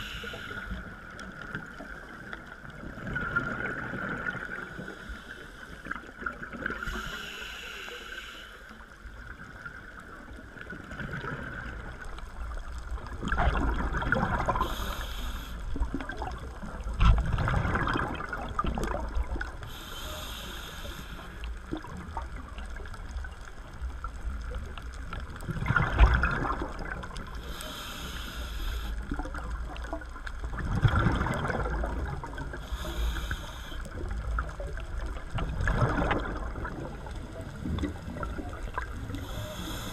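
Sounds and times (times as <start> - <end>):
regulator inhale hiss: 0.0 - 1.1, 4.6 - 9.2, 14.5 - 15.9, 19.6 - 21.7, 27.3 - 29.3, 32.5 - 34.3, 39.0 - 39.9
exhale bubbling gurgle: 0.0 - 7.3, 9.2 - 39.9
low underwater wash: 0.0 - 39.9.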